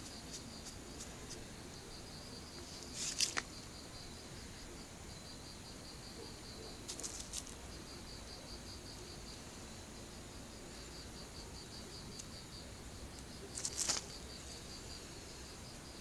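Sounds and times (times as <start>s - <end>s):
insects chirping: 0.0s - 16.0s
rustling and scraping: 2.6s - 3.6s, 6.9s - 7.6s, 13.5s - 14.6s.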